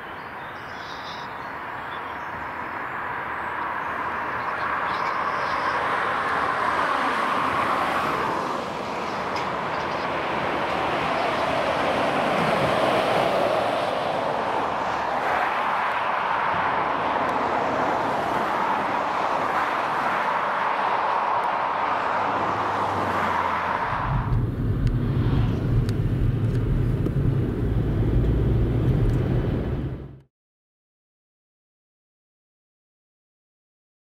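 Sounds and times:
traffic tyre and engine noise: 0.0 - 30.3
fire truck passing at speed: 5.7 - 30.2
low rumble: 23.8 - 30.2.

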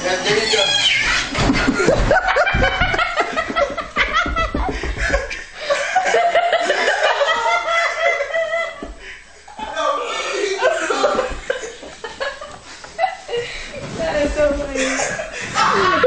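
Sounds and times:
people laughing: 0.1 - 13.8, 14.7 - 16.0
low thumps: 1.3 - 5.5.

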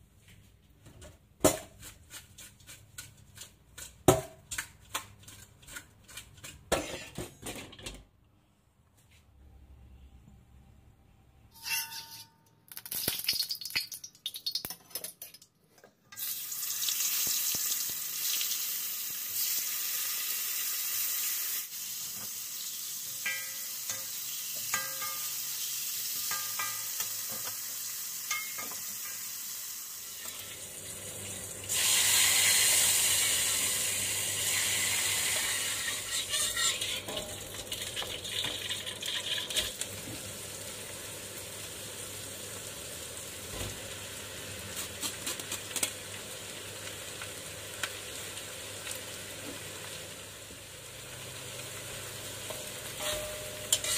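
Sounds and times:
metal spatula scraping a wok: 5.2 - 7.2, 11.6 - 12.4, 35.3 - 37.4, 52.5 - 53.9
food sizzling in hot oil: 12.8 - 14.7, 16.1 - 53.9.

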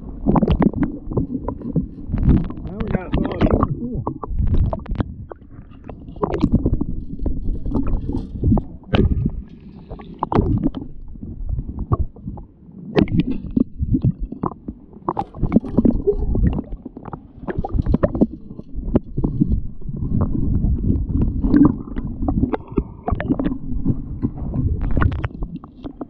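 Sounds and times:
low rumbles and knocks: 0.0 - 26.0
underwater gurgling and sloshing: 0.0 - 26.0.

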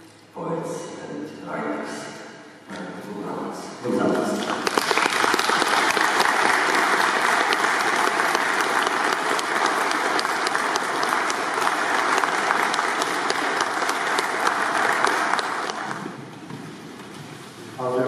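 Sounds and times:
audience applauding: 4.3 - 16.2.

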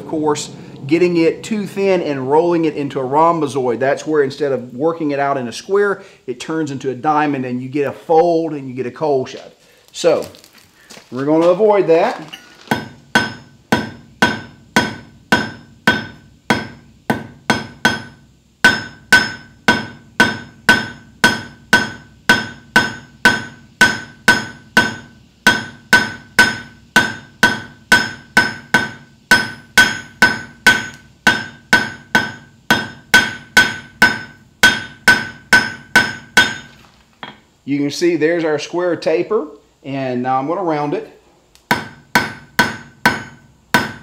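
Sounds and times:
anvil ringing: 12.3 - 37.4, 41.7 - 44.0
hammer striking metal on anvil: 12.7 - 37.4, 41.7 - 44.0.

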